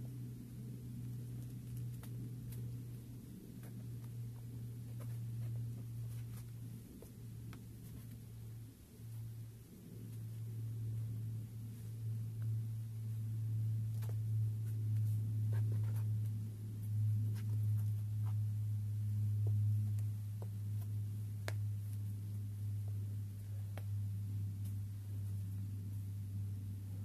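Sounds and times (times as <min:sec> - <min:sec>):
steady low hum: 0:00.0 - 0:27.0
climber's shoes and hands on rock: 0:03.5 - 0:08.3.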